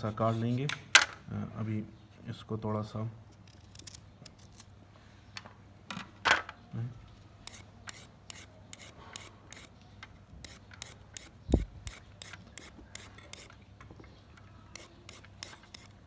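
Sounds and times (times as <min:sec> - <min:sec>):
peeler scraping carrot: 0:07.4 - 0:09.8, 0:10.4 - 0:13.6, 0:14.7 - 0:16.0.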